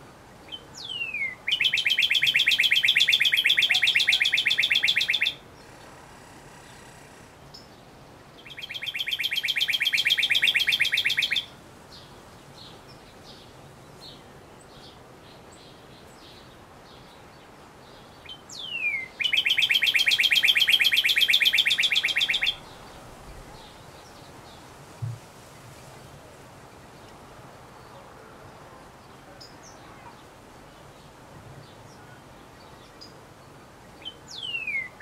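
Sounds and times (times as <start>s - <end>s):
cardinal singing trills: 0.5s - 5.4s, 8.4s - 11.5s, 18.6s - 22.8s.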